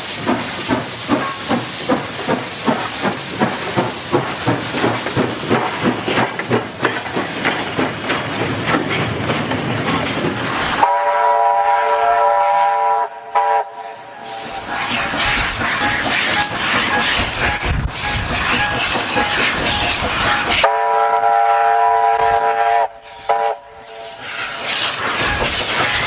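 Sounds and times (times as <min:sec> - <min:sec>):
steam locomotive exhaust chuffing: 0:00.0 - 0:26.0
coaches clattering over rail joints: 0:00.2 - 0:10.8, 0:14.2 - 0:20.7, 0:24.3 - 0:26.0
steam whistle blast: 0:10.8 - 0:14.5, 0:20.6 - 0:24.2.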